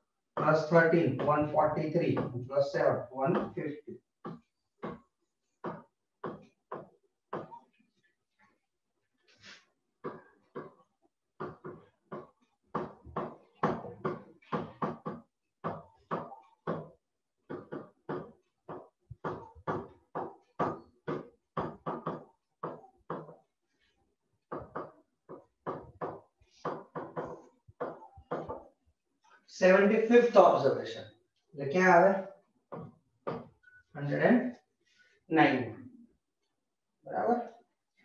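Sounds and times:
person speaking: 0.4 - 4.0, 29.5 - 31.0, 33.9 - 34.6, 35.3 - 35.9, 37.1 - 37.5.

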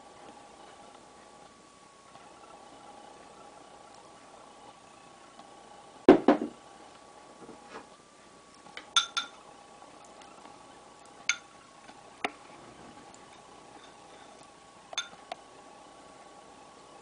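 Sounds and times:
spoon clinking against porcelain bowl: 9.0 - 9.4, 11.3 - 11.5, 15.0 - 15.2.

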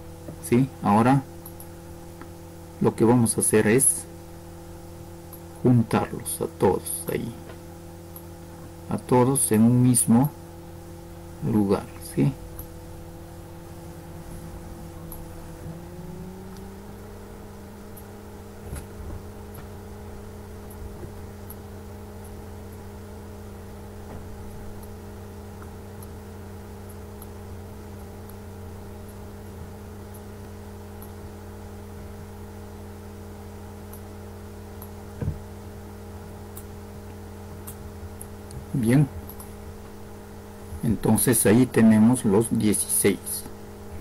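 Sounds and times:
low electrical hum and hiss: 0.0 - 44.0
short thump: 35.2 - 35.4.

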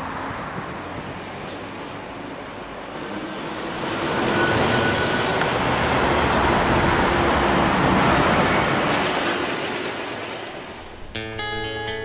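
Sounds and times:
faint high squeal: 3.4 - 5.9.

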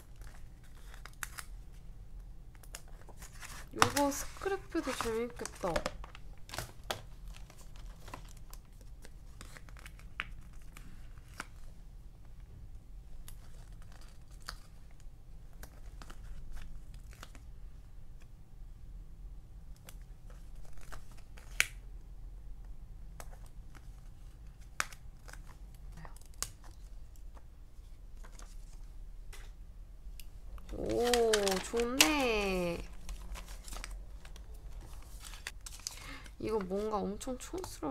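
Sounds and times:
stickers rustling and peeling: 2.5 - 11.8, 13.2 - 17.5, 30.1 - 37.9.

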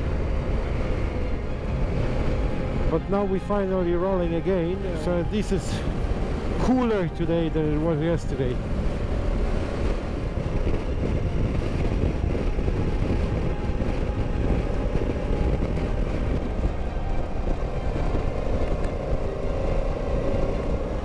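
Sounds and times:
motorcycle engine rumble: 0.0 - 21.0
wind noise on microphone: 4.7 - 21.0.

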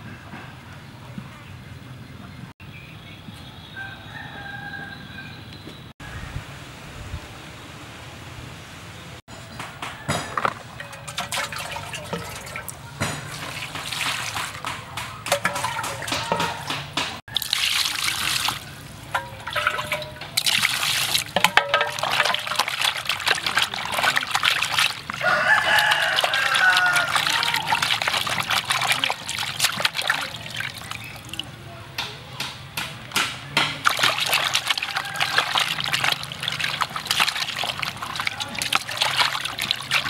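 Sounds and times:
water sloshing in basin: 10.2 - 31.6, 33.8 - 40.0
wet squelching: 10.5 - 31.5, 33.8 - 40.0
chickens calling: 22.0 - 31.3, 33.9 - 40.0.

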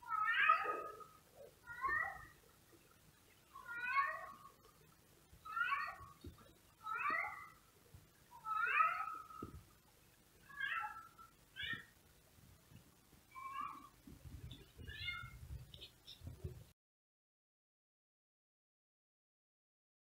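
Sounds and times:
cat meowing: 0.1 - 1.1, 3.6 - 4.4, 5.5 - 6.2, 6.8 - 7.6, 8.4 - 9.4, 10.5 - 11.9, 13.3 - 14.0, 14.8 - 15.4.

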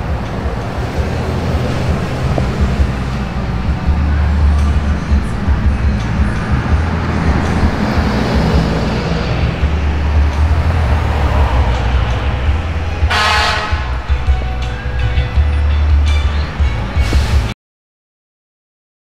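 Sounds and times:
vehicle engines rumbling: 0.0 - 17.6
short horn blast: 13.0 - 14.3.

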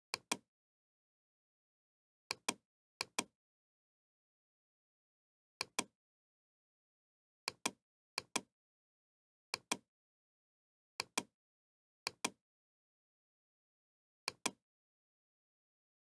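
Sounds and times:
computer mouse clicking: 0.1 - 0.4, 2.3 - 3.3, 5.6 - 5.9, 7.5 - 8.5, 11.0 - 11.3, 12.1 - 12.4, 14.3 - 14.6.

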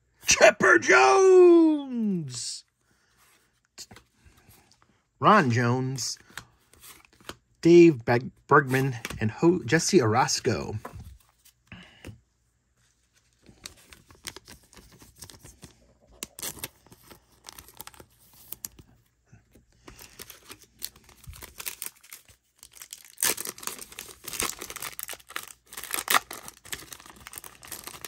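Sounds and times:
cards clicking and rustling: 6.2 - 7.4, 8.7 - 9.2
wrapper tearing and crinkling: 16.2 - 18.7, 20.0 - 28.0.

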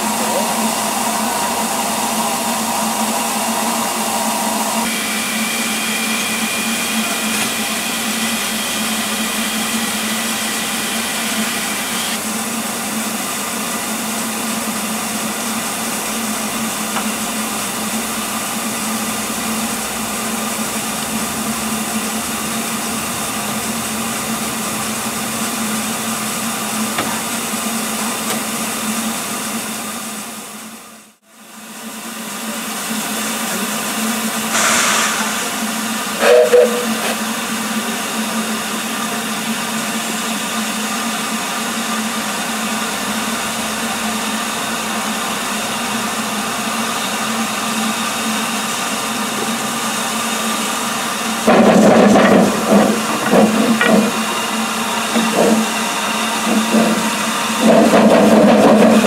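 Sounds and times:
steam hissing from locomotive: 0.0 - 30.8, 31.4 - 59.0
whistling tone: 36.2 - 37.0.

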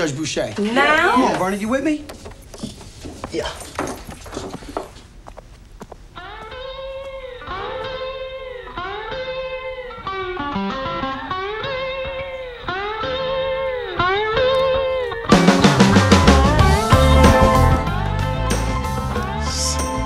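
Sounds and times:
blues guitar sliding phrase: 6.6 - 20.0
band with drums and bass: 11.8 - 20.0.

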